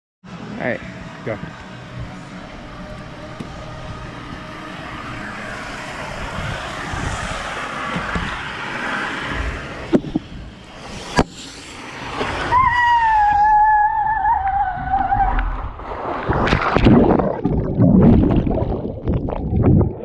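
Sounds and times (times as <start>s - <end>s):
wind noise: 3.8s - 11.4s, 12.2s - 20.0s.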